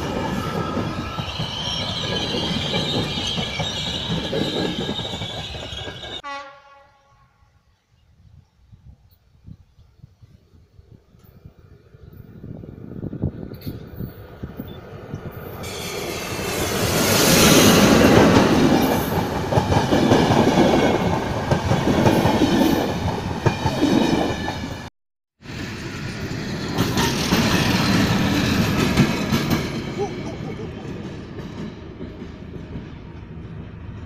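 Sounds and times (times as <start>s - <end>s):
diesel locomotive engine: 0.0s - 6.2s, 10.8s - 34.0s.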